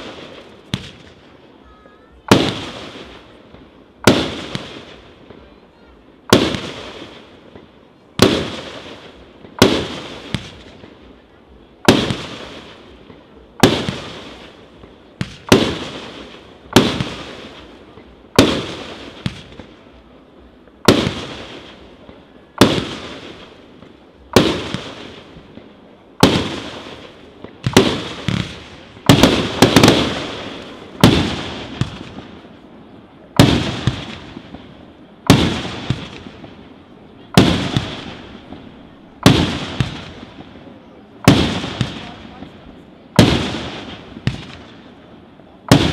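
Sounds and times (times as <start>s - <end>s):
fireworks bangs echoing: 0.0s - 45.9s.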